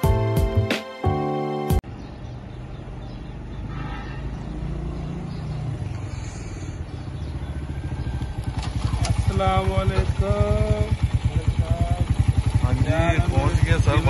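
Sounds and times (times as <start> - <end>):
motorcycle engine running: 4.5 - 14.0.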